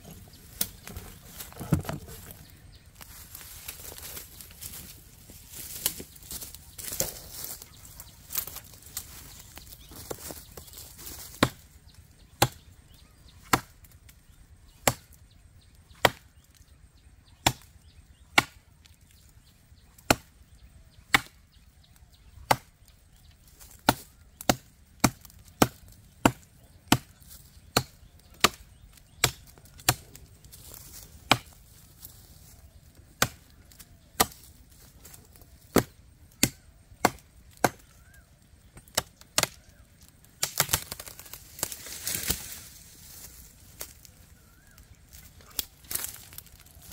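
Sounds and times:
rustling: 0.0s - 11.3s
knife chopping into tree trunk: 0.1s - 2.4s, 21.1s - 21.4s, 35.7s - 37.9s.

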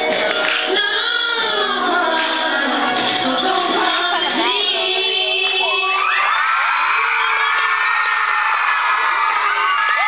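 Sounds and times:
children screaming and cheering: 5.6s - 10.0s.

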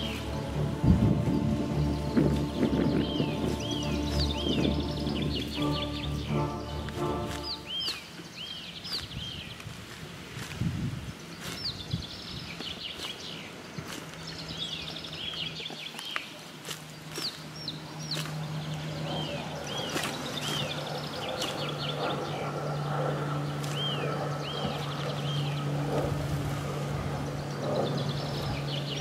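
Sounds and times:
low steady hum: 0.0s - 8.4s, 16.9s - 29.0s.

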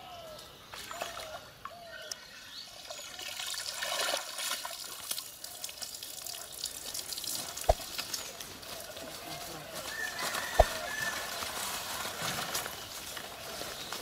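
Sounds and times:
water splashing off a net: 3.4s - 5.3s.

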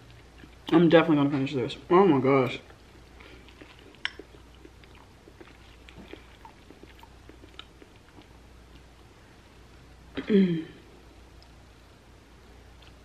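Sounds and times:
chewing and mouth sounds: 0.0s - 0.9s, 2.4s - 9.2s, 12.7s - 13.0s.

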